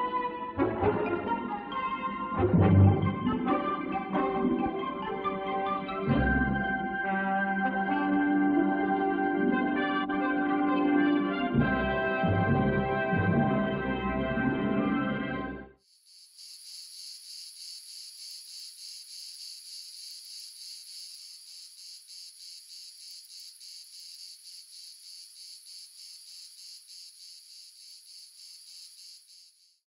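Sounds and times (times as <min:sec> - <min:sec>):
high-pitched rhythmic chirring: 0:15.8 - 0:29.8.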